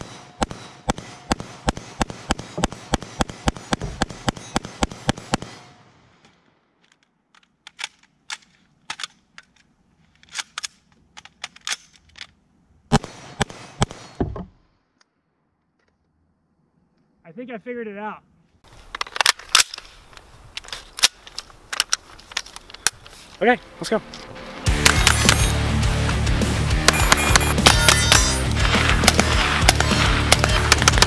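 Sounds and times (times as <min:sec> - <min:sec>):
rifle shots in fast strings: 0:00.0 - 0:05.8, 0:12.9 - 0:14.2, 0:24.7 - 0:31.0
faint scattered sharp cracks: 0:27.6 - 0:31.0.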